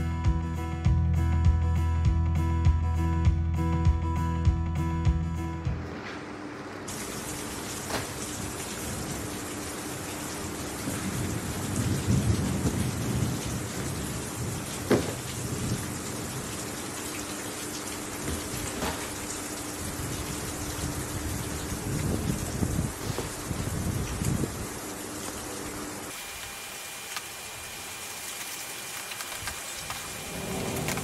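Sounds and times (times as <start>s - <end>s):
steady rain: 6.9s - 31.0s
low rumble of thunder: 10.8s - 16.4s, 30.2s - 31.0s.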